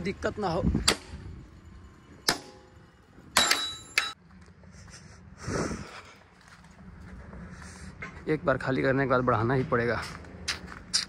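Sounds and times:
metal clank with ringing: 2.2 - 4.2.

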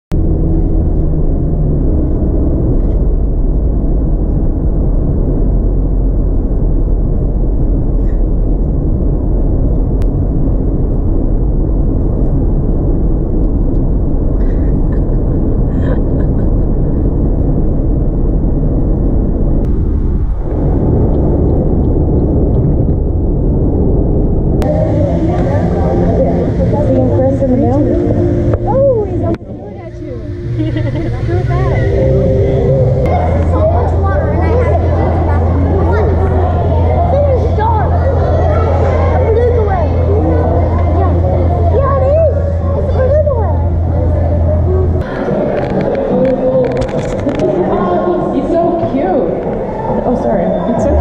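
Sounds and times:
road and engine rumble in car: 0.1 - 37.8.

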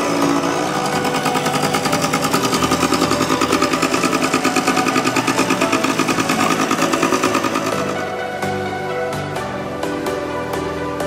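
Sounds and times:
two-stroke engine running: 0.0 - 8.3.

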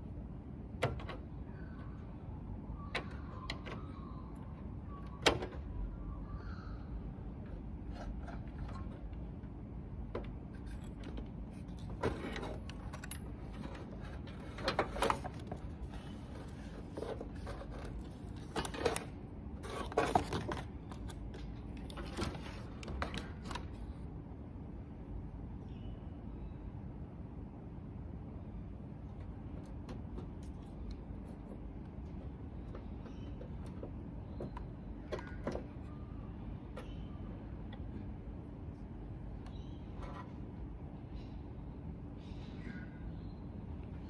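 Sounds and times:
steady low hum: 0.0 - 44.0
clicks and rattles of plastic connectors: 10.2 - 23.8.

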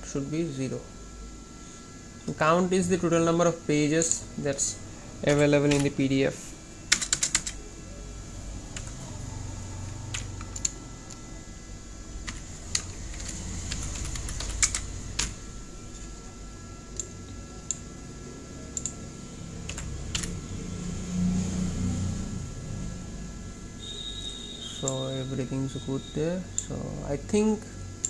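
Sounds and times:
keyboard keystrokes: 19.7 - 20.4.

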